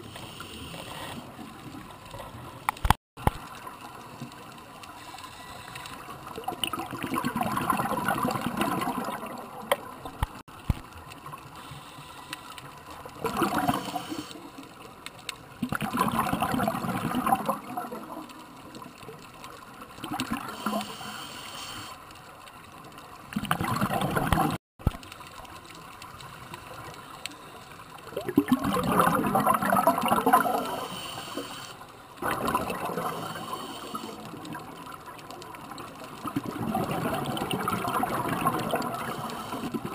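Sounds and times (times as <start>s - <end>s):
bubbling exhaled air underwater: 6.4s - 10.4s, 13.2s - 14.3s, 15.6s - 18.2s, 23.3s - 24.6s, 28.1s - 31.1s, 32.2s - 34.8s, 36.1s - 39.9s.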